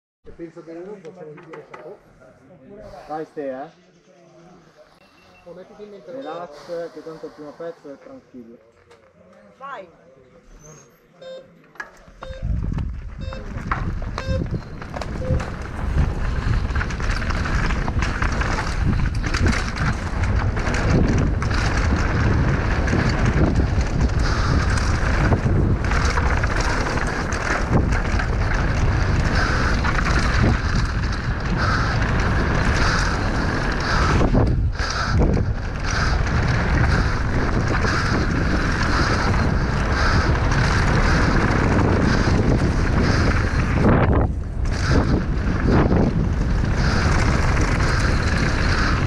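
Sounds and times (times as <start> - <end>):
bike rattling: 12.0 - 49.0
wind buffeting microphone: 12.2 - 49.0
sharp knocks of bike over bumps: 12.6 - 49.0.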